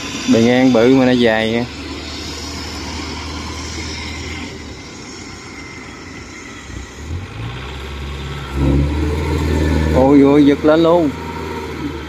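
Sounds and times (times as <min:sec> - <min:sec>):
cart engine running under load: 0:00.0 - 0:12.0.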